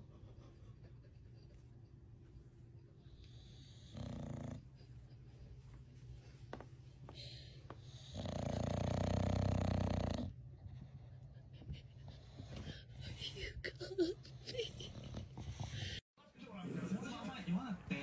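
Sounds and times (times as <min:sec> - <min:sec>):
dog snoring: 0:03.2 - 0:04.8, 0:07.8 - 0:10.4.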